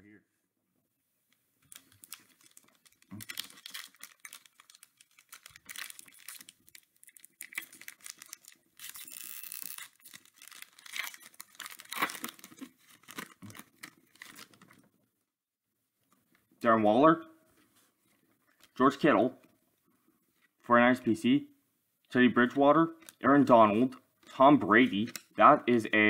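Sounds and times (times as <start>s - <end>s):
cards rustling: 1.6s - 14.9s
wrapper tearing: 1.6s - 14.9s
plastic wrapper crinkling: 1.6s - 15.0s, 23.0s - 23.2s.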